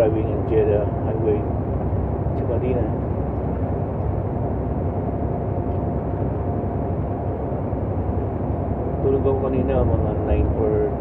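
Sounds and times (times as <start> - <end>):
truck engine and road noise: 0.0 - 11.0.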